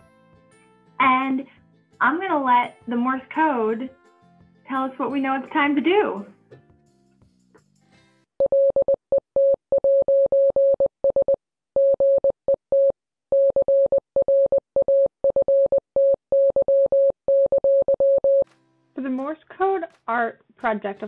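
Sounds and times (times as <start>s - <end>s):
morse code beeps: 8.4s - 18.4s.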